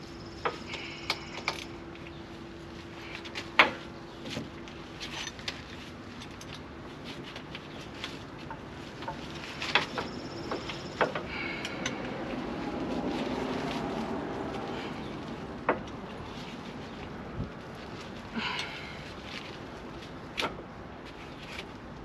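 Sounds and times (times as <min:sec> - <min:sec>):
hand tools clicking and knocking: 0:00.4 - 0:01.7, 0:08.5 - 0:12.1.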